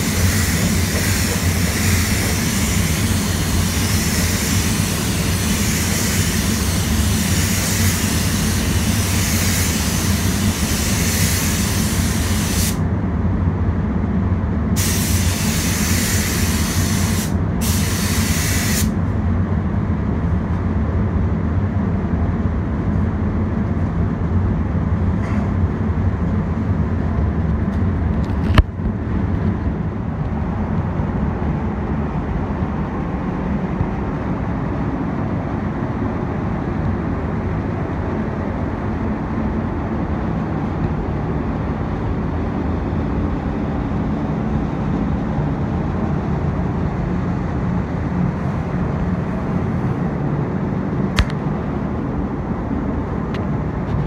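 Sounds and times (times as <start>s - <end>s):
spray gun hissing: 0.0s - 12.8s, 14.8s - 18.9s
ventilation rumble: 0.0s - 54.0s.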